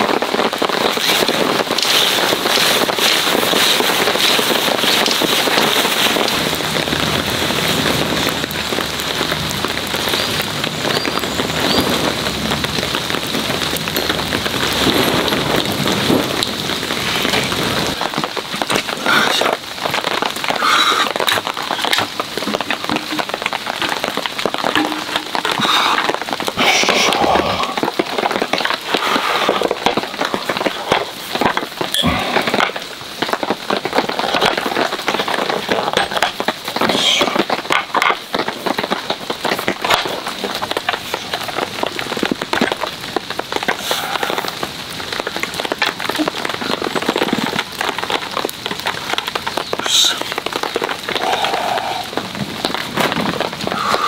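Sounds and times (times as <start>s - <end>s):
rain pattering on a tarp: 0.0s - 54.0s
wooden knocks and clatter: 13.4s - 43.8s.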